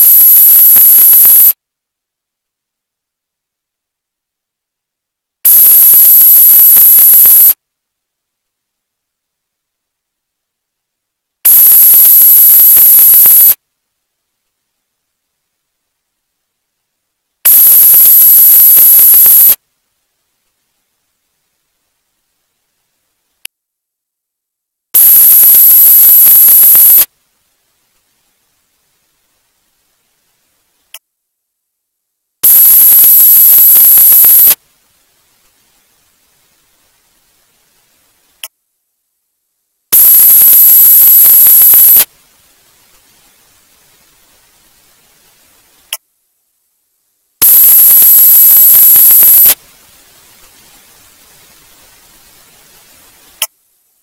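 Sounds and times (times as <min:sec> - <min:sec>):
high steady whine: 0:00.0 - 0:01.6, 0:05.4 - 0:07.6, 0:11.4 - 0:13.6, 0:17.4 - 0:19.6, 0:25.0 - 0:27.1, 0:32.4 - 0:34.6, 0:39.9 - 0:44.3, 0:47.4 - 0:53.5
loud static hiss: 0:00.0 - 0:54.0
faint click: 0:23.3 - 0:23.6, 0:30.8 - 0:31.1, 0:45.8 - 0:46.1, 0:53.3 - 0:53.6.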